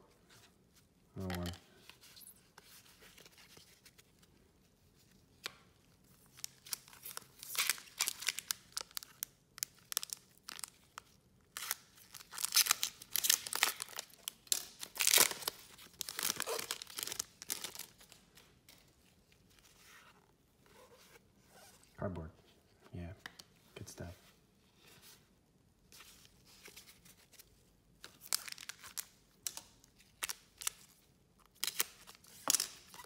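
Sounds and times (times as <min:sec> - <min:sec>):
foil wrapper tearing and crinkling: 0:06.4 - 0:18.2, 0:28.2 - 0:29.6, 0:31.6 - 0:33.0.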